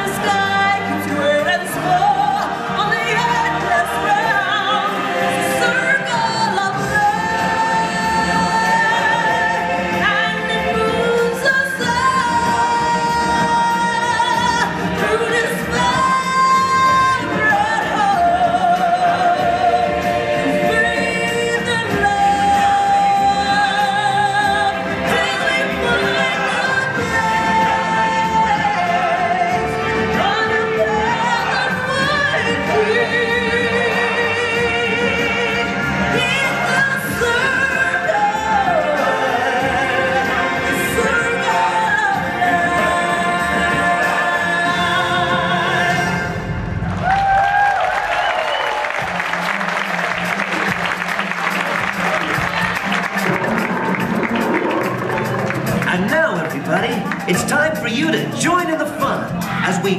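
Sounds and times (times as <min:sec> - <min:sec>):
people singing: 0:00.0 - 0:46.5
backing music: 0:00.0 - 0:59.9.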